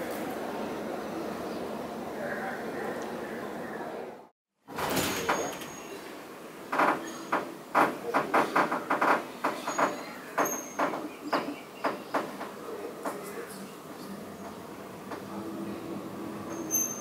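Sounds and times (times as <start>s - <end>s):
low background noise: 0.0s - 17.0s
rapid knocks and clatters: 6.7s - 13.2s.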